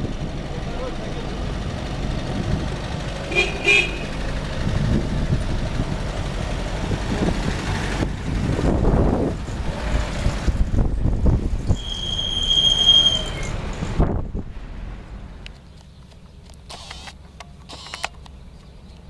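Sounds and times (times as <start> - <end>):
vehicle engines and road noise: 0.0 - 19.0
car horn double toot: 3.3 - 4.1.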